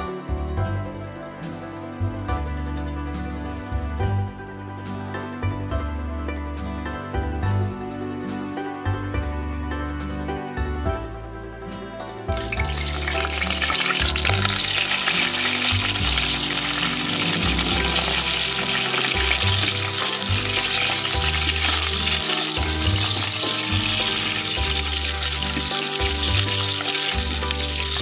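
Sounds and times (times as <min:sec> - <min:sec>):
food sizzling in hot oil: 0:12.4 - 0:28.0.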